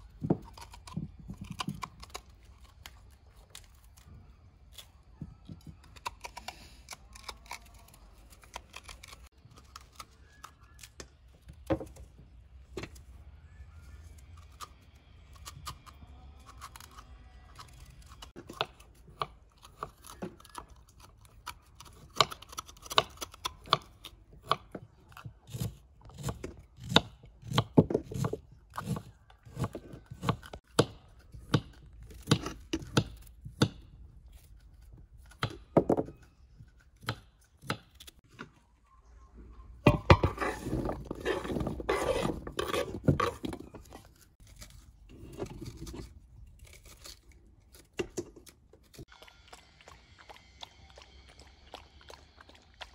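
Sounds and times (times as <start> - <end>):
knife cutting fruit: 14.4 - 38.3, 39.9 - 49.1.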